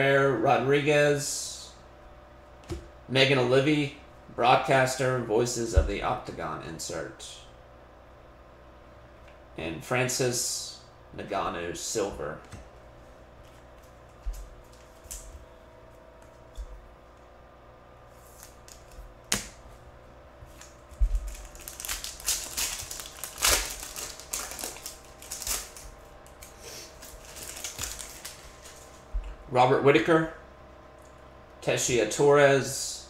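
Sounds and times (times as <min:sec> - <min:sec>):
cards shuffled: 0:18.1 - 0:19.6
foil wrapper crinkling: 0:20.5 - 0:29.0.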